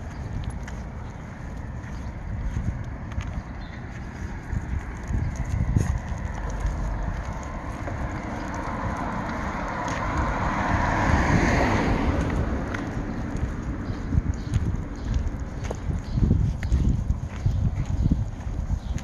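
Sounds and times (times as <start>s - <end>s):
footsteps: 0.0s - 19.0s
wind rumble on microphone: 0.0s - 19.0s
car tyres on wet road: 5.6s - 14.3s.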